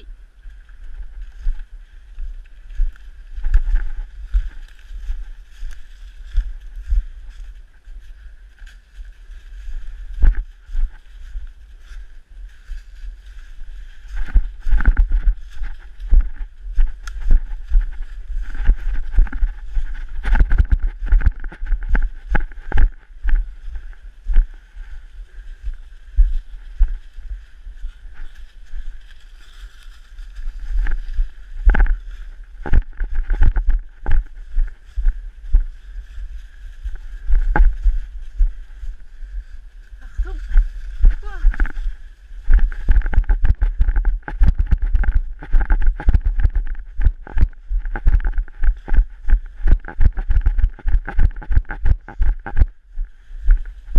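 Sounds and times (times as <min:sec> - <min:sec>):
footsteps through dry leaves: 0:00.1 - 0:53.9
camera jostling thumps: 0:14.1 - 0:23.4, 0:32.6 - 0:34.8, 0:41.0 - 0:52.8.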